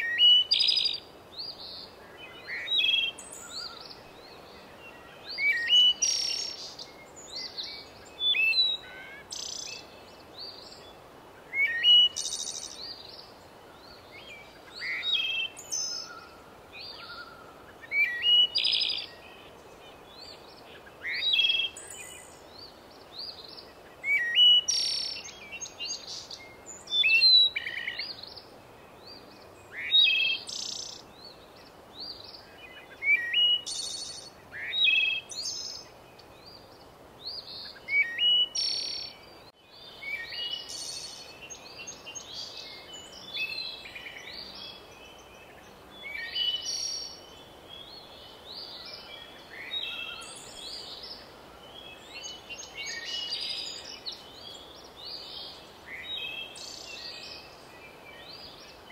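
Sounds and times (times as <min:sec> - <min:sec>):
songbird chirping and whistling: 0:00.0 - 0:01.0, 0:04.9 - 0:10.8, 0:11.5 - 0:13.2, 0:20.2 - 0:22.3, 0:23.5 - 0:28.4, 0:32.0 - 0:36.6, 0:37.3 - 0:39.3.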